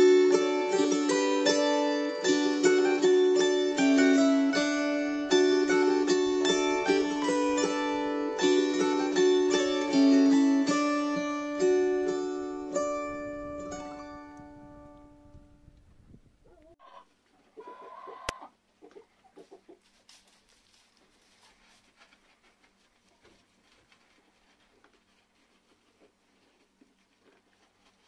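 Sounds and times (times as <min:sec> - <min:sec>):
plucked acoustic guitar music: 0:00.0 - 0:15.4
hen clucking: 0:16.4 - 0:19.9
faint rustling: 0:18.7 - 0:28.0.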